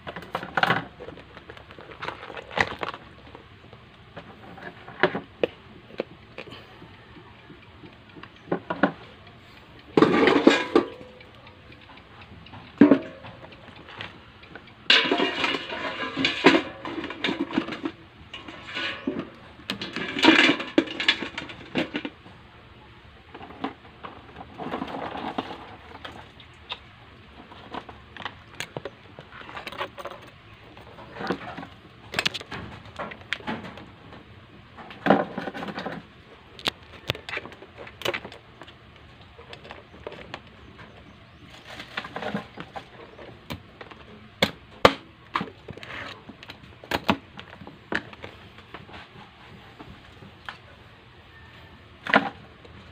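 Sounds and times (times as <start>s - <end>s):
lobster shell clicking and scraping: 0.0s - 3.5s, 27.4s - 33.5s, 34.9s - 40.5s.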